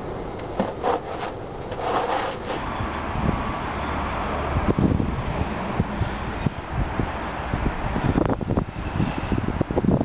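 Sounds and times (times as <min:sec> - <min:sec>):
wind buffeting microphone: 0:02.4 - 0:03.6, 0:04.4 - 0:10.0.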